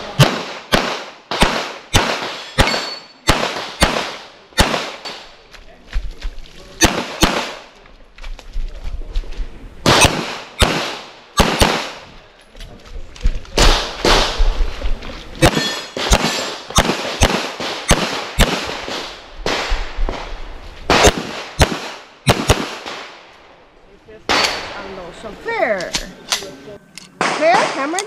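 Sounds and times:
handgun shots: 0.2 - 5.0, 9.9 - 12.0, 15.4 - 19.0, 20.9 - 22.9.

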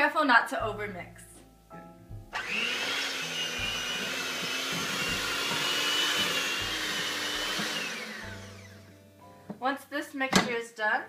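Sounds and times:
electric hand mixer whining: 2.4 - 8.9.

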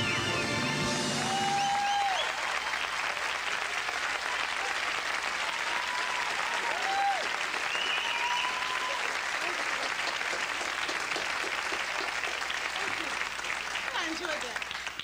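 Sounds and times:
audience applauding: 0.0 - 15.0
audience whoops: 0.9 - 3.4, 4.0 - 9.9.

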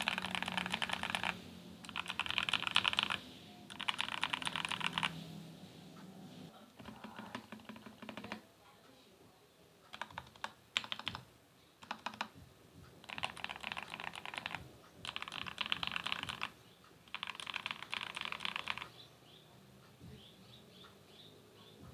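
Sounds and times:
mechanical keyboard typing: 0.0 - 5.2, 6.8 - 8.4, 9.9 - 12.4, 13.0 - 19.0.

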